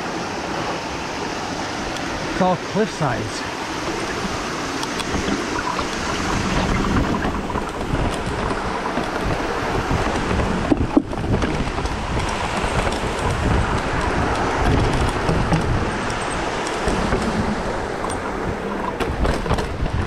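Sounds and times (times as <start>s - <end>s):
wind on microphone: 3.5s - 20.0s
tyres rolling on rock: 5.0s - 20.0s.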